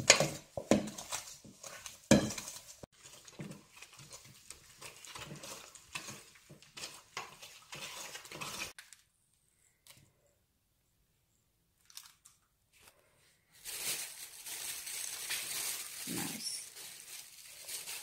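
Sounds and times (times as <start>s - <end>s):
whisk scraping metal bowl: 0.0s - 8.8s.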